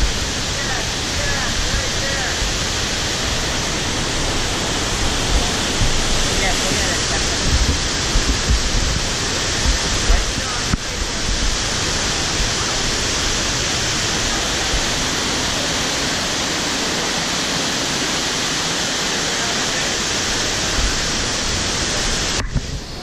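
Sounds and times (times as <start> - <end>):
stream rushing over rocks: 0.0 - 23.0
wind thumps on microphone: 1.1 - 12.9, 22.0 - 23.0.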